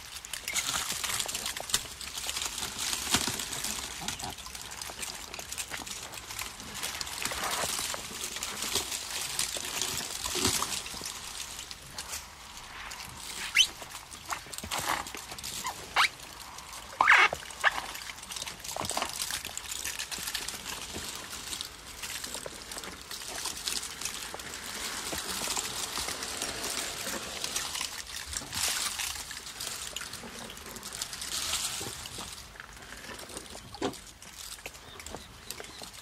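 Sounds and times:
rustling vegetation: 0.0s - 36.0s
rain hissing: 3.4s - 19.1s, 20.5s - 28.6s.

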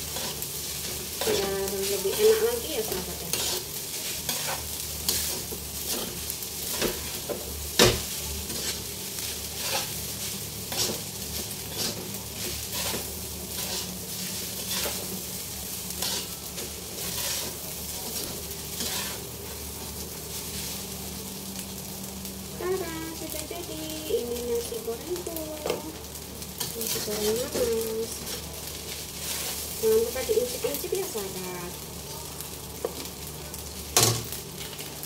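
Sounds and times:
rice sizzling in a wok: 0.0s - 35.0s
metal spatula scraping a wok: 0.1s - 15.2s, 15.9s - 19.6s, 26.6s - 29.8s.

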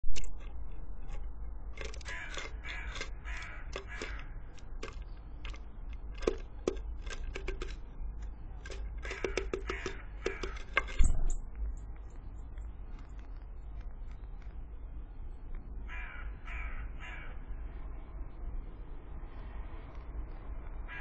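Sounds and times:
bird pecking at seeds: 0.1s - 16.6s
short raspy bird calls: 1.8s - 5.6s.

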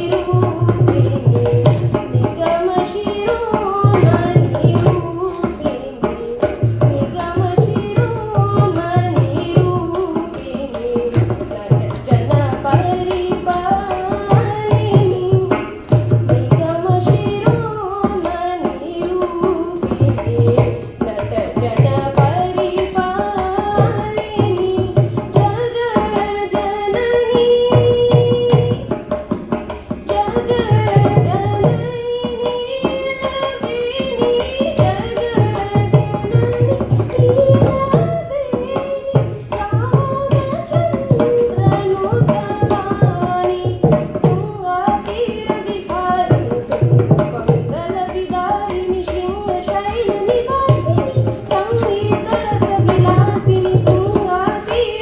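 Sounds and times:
woman singing devotional song: 0.0s - 55.0s.

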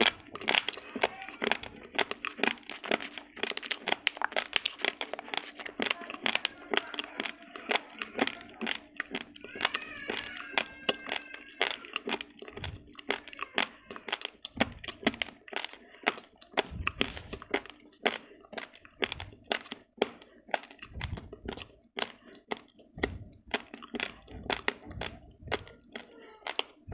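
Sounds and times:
rice grains crunched between teeth: 0.0s - 26.9s
dull low thumps: 14.6s - 15.2s, 16.6s - 17.5s, 20.8s - 21.7s, 22.9s - 23.6s, 24.2s - 25.8s.

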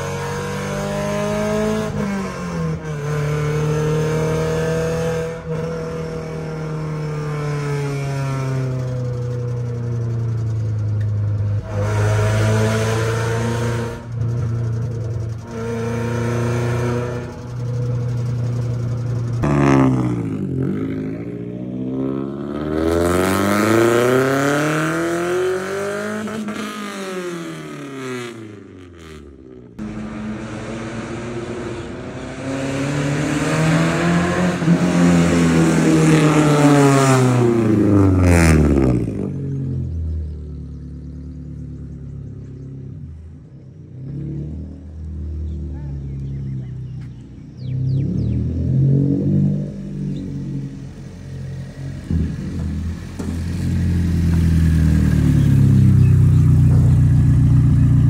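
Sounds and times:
car passing by with deep exhaust: 29.8s - 58.0s.

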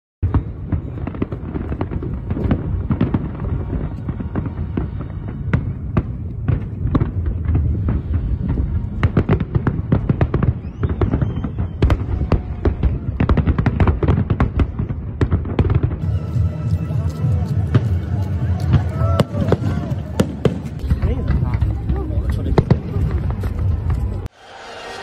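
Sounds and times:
fireworks bursts and crackles: 0.2s - 25.0s
deep rumble: 0.8s - 13.6s.

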